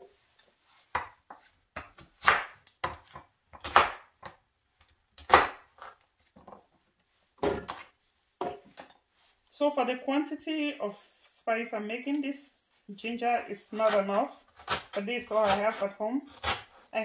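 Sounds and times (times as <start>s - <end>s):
knife chopping on wooden board: 0.9s - 4.4s, 5.2s - 6.0s, 7.4s - 8.6s.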